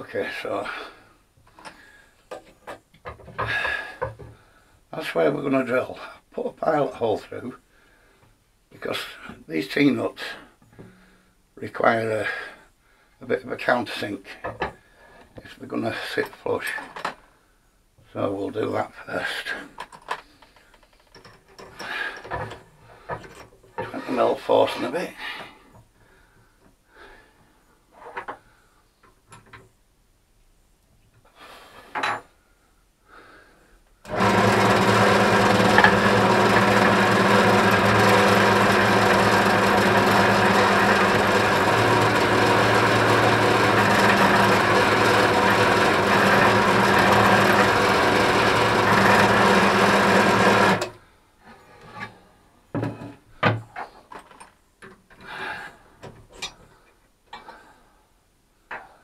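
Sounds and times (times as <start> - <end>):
drill press drilling plywood: 34.1 - 51.0.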